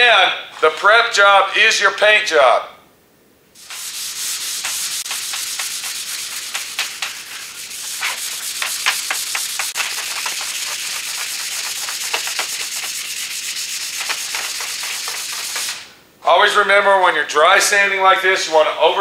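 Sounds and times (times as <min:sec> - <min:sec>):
sandpaper block rasping: 0:03.6 - 0:15.9.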